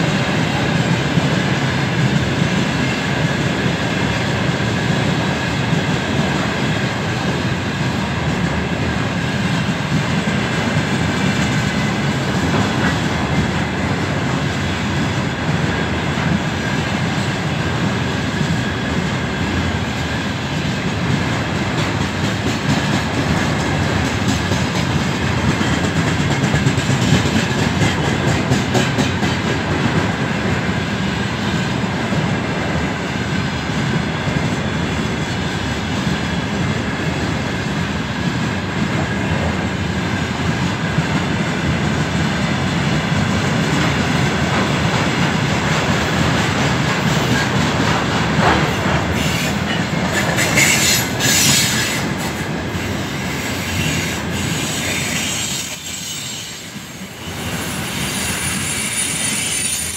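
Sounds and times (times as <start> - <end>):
clickety-clack over rail joints: 0.0 - 59.9
train wheels rumbling on rails: 0.0 - 59.9
high-pitched wheel squeals: 57.3 - 59.9.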